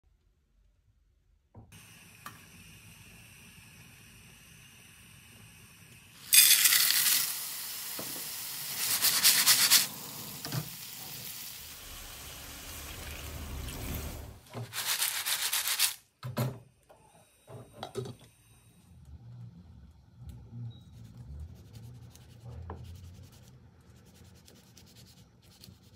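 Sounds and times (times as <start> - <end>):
water hissing in hot pan: 1.8 - 15.9
hot oil sizzling in a frying pan: 6.2 - 14.4.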